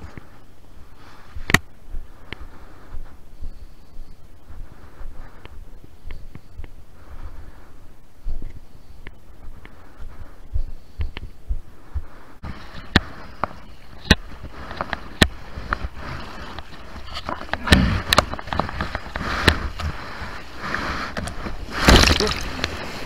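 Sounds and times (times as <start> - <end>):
water splashing and sloshing: 12.4 - 23.0.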